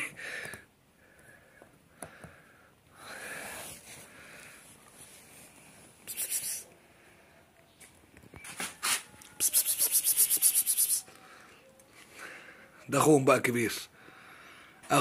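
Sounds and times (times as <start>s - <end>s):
rapid rhythmic scratching: 9.4s - 11.0s.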